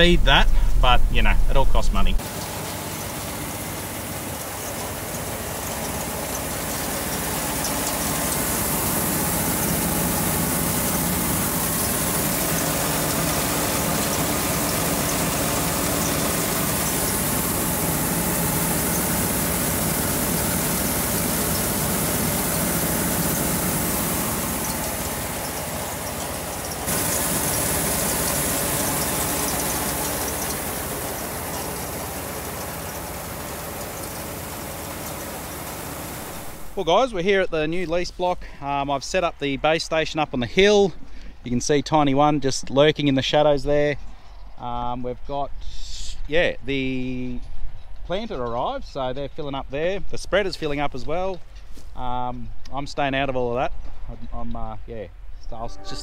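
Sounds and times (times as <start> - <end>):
grain machinery humming: 0.0 - 38.0.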